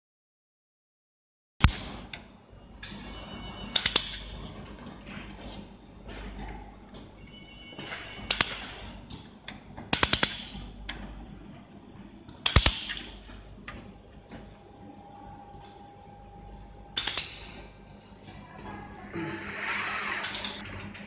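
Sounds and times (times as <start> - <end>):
laser welder crackling pops: 1.6 - 2.2, 3.8 - 4.3, 8.3 - 8.8, 9.9 - 10.7, 12.3 - 13.2, 17.0 - 17.5.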